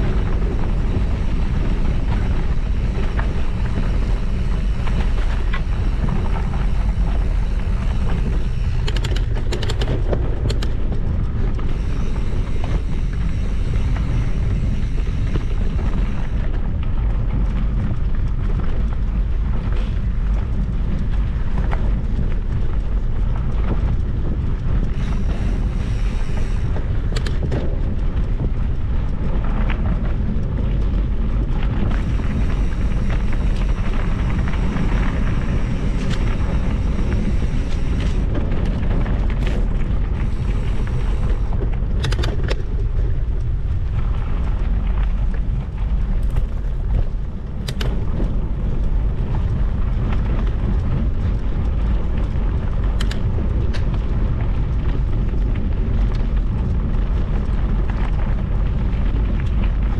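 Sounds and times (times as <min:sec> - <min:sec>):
wind buffeting microphone: 0:00.0 - 0:59.9
short rattling clicks: 0:08.6 - 0:10.8, 0:41.3 - 0:42.7.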